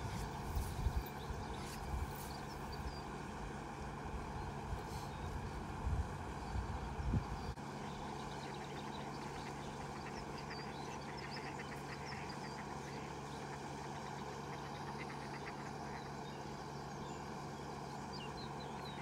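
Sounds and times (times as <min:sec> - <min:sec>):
small birds chirping: 0:00.0 - 0:19.0
steady low hum: 0:00.0 - 0:19.0
ducks quacking: 0:08.5 - 0:16.3.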